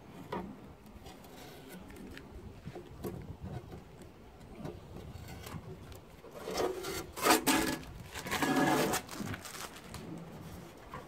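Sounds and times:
sheet metal scraping on toolbox: 6.4s - 9.1s.

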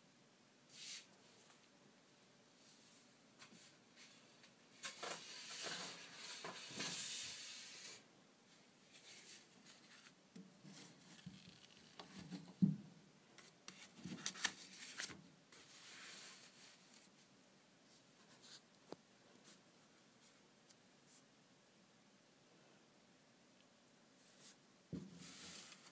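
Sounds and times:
handling noise rubbing and rustling: 2.6s - 12.6s, 13.4s - 21.3s, 24.2s - 25.9s.

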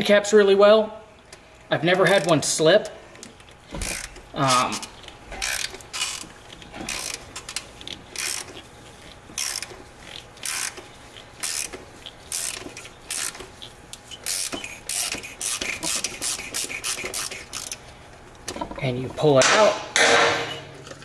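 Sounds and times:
ratchet clicking: 6.9s - 8.6s, 9.4s - 10.8s, 11.4s - 13.4s, 14.2s - 17.8s.

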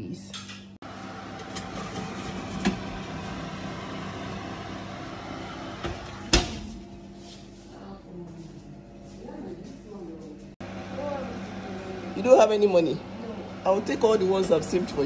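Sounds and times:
oven door shutting: 0.3s - 6.9s
steady hum: 0.8s - 15.0s.

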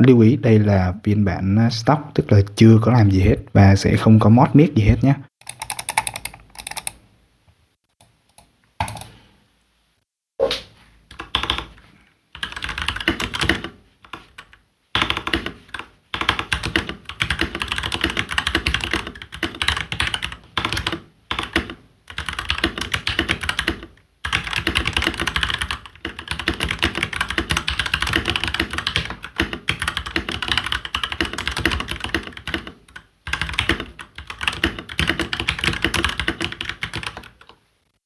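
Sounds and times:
mechanical keyboard typing: 5.4s - 7.0s, 8.8s - 9.2s, 11.1s - 11.7s, 12.4s - 37.5s.

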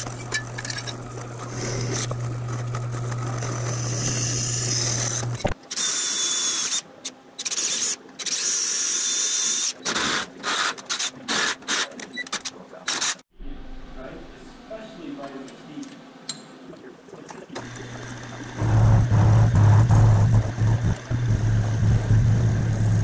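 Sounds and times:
drill press cutting aluminum: 17.6s - 23.0s.

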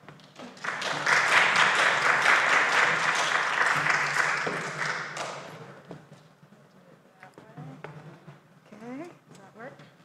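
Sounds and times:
people applauding: 0.2s - 5.6s.

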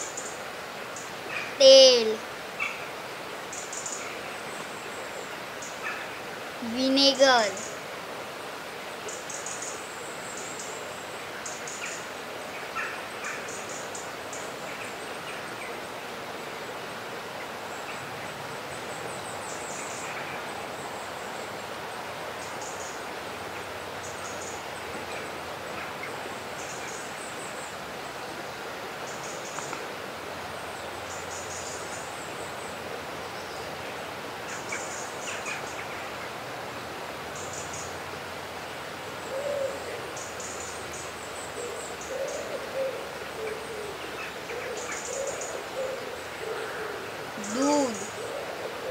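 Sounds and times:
steady hiss: 0.0s - 48.9s
birds chirping: 47.4s - 48.9s.

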